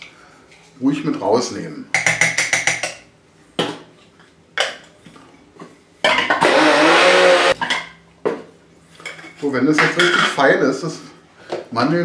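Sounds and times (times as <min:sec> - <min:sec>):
electric grinder motor grinding: 0:06.4 - 0:07.6.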